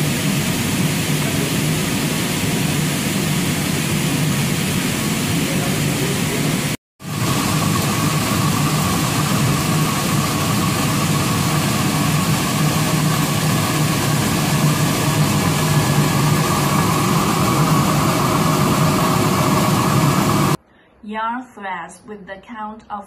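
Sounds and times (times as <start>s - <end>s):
machine droning with whine: 0.0s - 20.6s.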